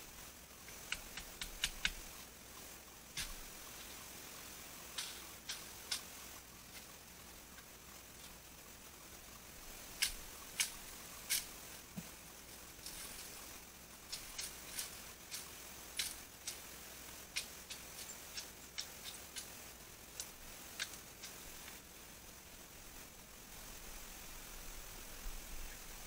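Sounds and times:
faint steady hiss: 0:00.0 - 0:26.0
dry bamboo and twigs snapping: 0:00.6 - 0:02.1, 0:04.9 - 0:06.9, 0:09.9 - 0:12.1, 0:14.1 - 0:16.7, 0:17.3 - 0:21.8.

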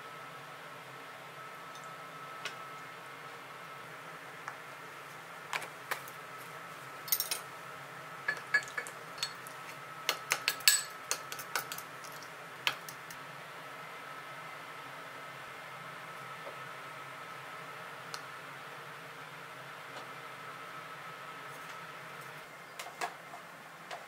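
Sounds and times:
spoon clinking against glass bowl: 0:08.3 - 0:09.4, 0:10.4 - 0:12.2.

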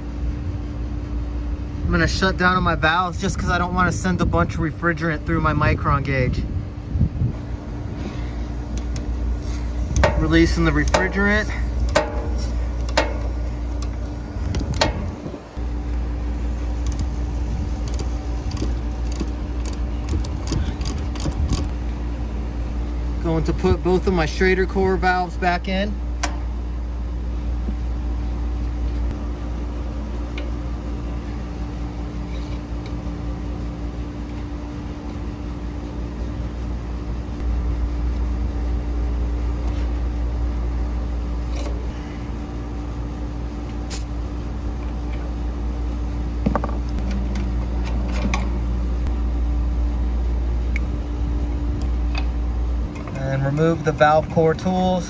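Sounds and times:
mechanical hum: 0:00.0 - 0:55.0.

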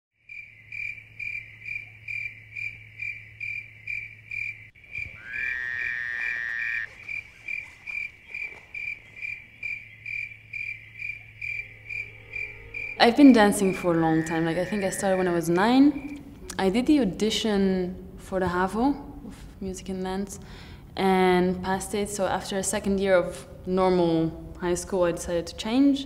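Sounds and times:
cricket-like chirping: 0:00.2 - 0:16.5
low hum: 0:01.4 - 0:17.2.

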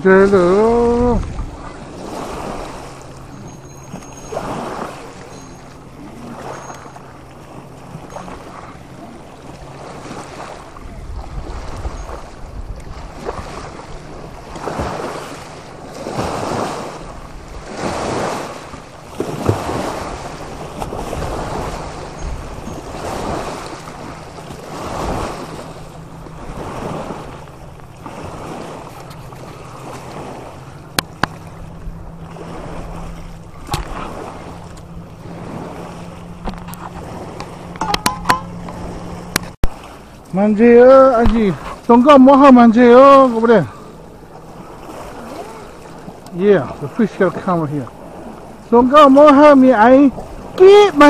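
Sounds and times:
low hum: 0:00.0 - 0:16.1, 0:18.5 - 0:40.4
wind on microphone: 0:00.0 - 0:39.9
waves lapping on rocks: 0:00.0 - 0:51.0.

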